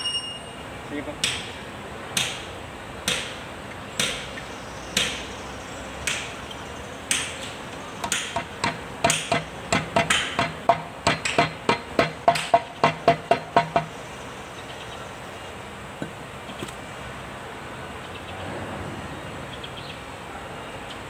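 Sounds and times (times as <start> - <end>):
hammer blows on metal: 8.0 - 14.0.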